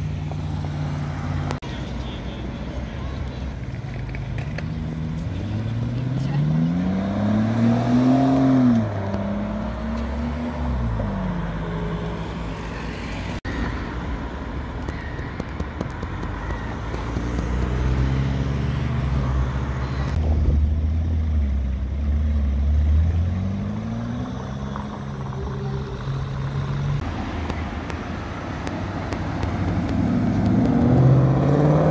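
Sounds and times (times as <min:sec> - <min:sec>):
car engine pulling away: 0:03.8 - 0:13.2, 0:16.8 - 0:31.9.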